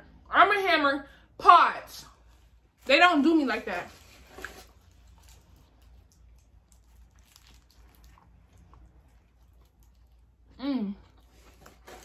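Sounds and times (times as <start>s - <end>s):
low room hum: 0.0s - 12.0s
person chewing food: 4.4s - 12.0s.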